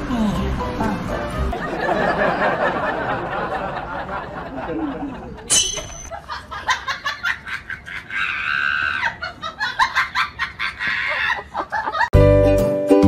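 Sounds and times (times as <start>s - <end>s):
people laughing and chattering: 0.3s - 8.4s.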